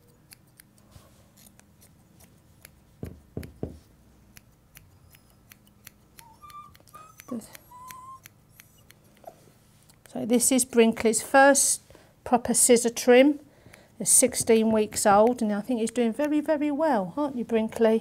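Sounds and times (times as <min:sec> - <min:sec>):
scissors snipping hair: 0:00.0 - 0:03.6, 0:04.3 - 0:10.2, 0:13.7 - 0:16.4
dull thumps: 0:03.0 - 0:03.9
short high squeaks: 0:06.2 - 0:09.4.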